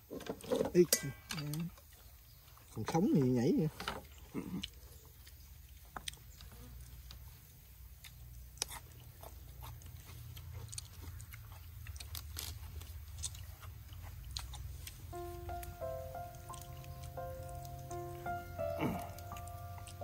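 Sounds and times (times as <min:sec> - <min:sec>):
person chewing: 0:04.0 - 0:20.0
lettuce leaves crinkling: 0:07.2 - 0:20.0
chopsticks clicking: 0:14.3 - 0:20.0.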